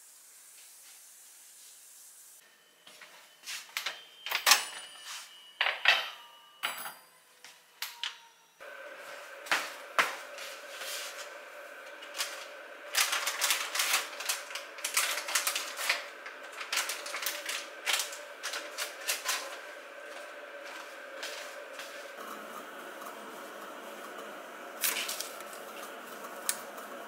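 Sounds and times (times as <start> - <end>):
plastic packet crinkling: 12.0 - 19.6.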